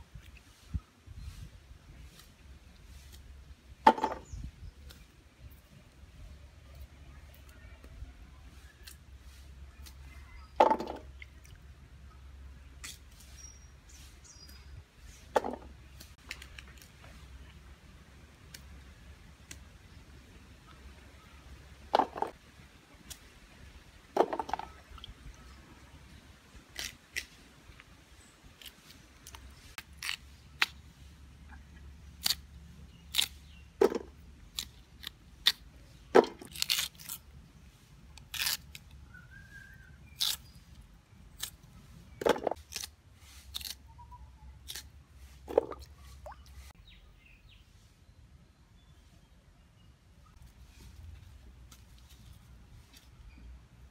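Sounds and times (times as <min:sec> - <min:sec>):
knife crunching through root: 0:26.7 - 0:27.4, 0:28.6 - 0:30.8, 0:32.2 - 0:37.2, 0:38.2 - 0:38.8, 0:40.0 - 0:40.6, 0:42.3 - 0:43.8.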